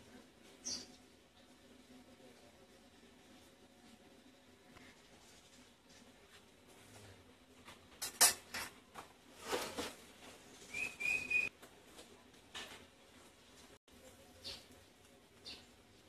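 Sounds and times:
wok clanking on metal grate: 8.0 - 8.8.

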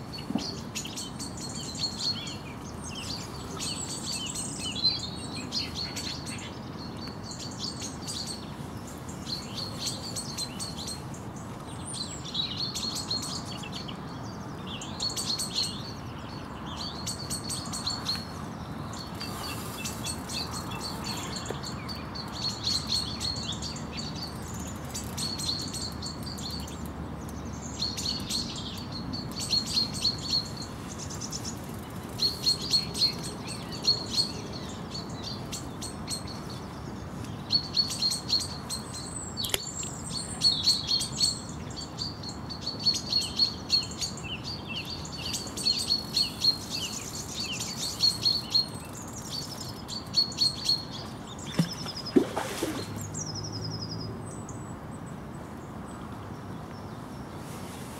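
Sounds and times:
songbirds twittering: 0.0 - 57.9
river water rushing: 51.5 - 53.2.

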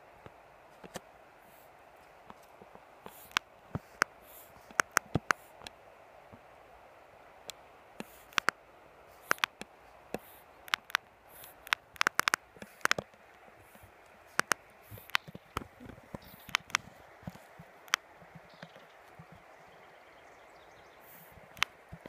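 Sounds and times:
faint steady hiss: 0.0 - 22.0
sharp clicks and taps: 3.1 - 4.1, 4.7 - 5.4, 7.5 - 8.6, 9.2 - 13.2, 14.3 - 19.4.

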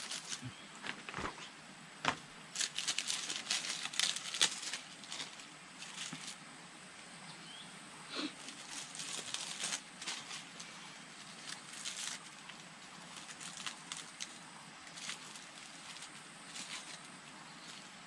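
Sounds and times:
leaves rustling and crackling: 0.0 - 6.6, 8.1 - 18.0.

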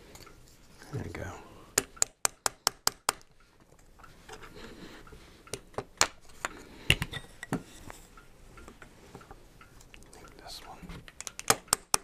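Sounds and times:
hand tools clicking and knocking: 11.1 - 12.0.

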